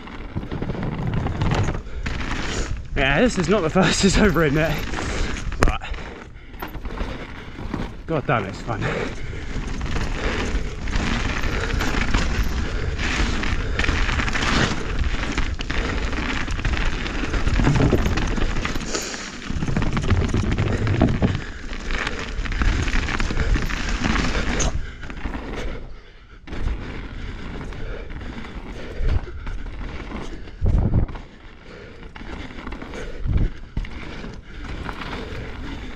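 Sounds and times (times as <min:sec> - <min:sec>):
bike rattling over bumps: 0:00.0 - 0:35.9
bike tyres on dirt: 0:00.0 - 0:35.9
wind buffeting microphone: 0:27.2 - 0:32.3.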